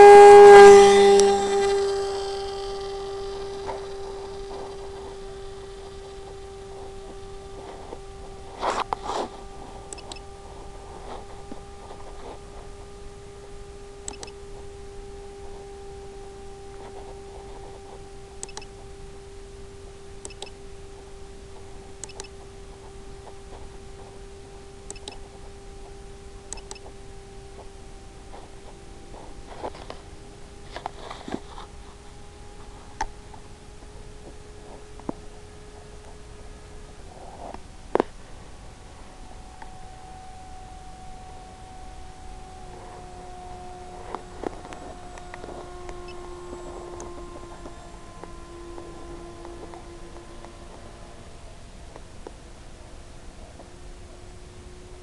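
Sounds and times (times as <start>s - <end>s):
short crackle: 0.0s - 52.9s
steady hum: 0.0s - 55.0s
faint clicks: 9.9s - 10.2s, 14.0s - 14.4s, 16.8s - 18.8s, 20.2s - 20.6s, 22.0s - 24.1s, 24.8s - 27.0s.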